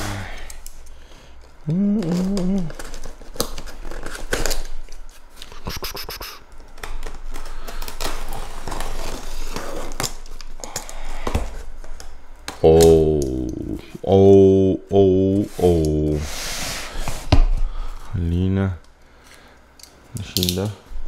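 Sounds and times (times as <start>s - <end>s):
packing tape scratching and tearing: 1.7s - 13.8s.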